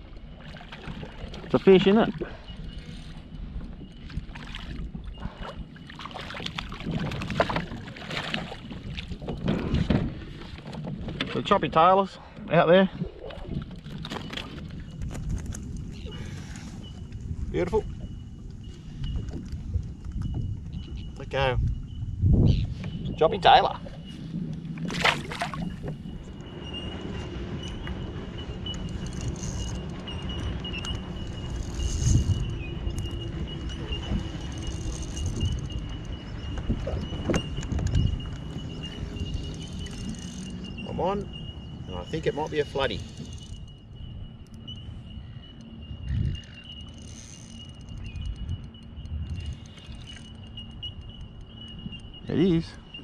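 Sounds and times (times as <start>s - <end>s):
water splashing around kayak: 0.0s - 22.0s, 22.6s - 43.9s
wind: 0.0s - 53.0s
faint steady high tone: 26.2s - 53.0s.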